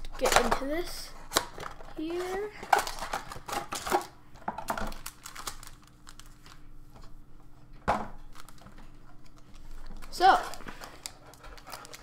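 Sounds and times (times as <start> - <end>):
foil packs crinkling: 1.3 - 6.7, 8.2 - 12.0.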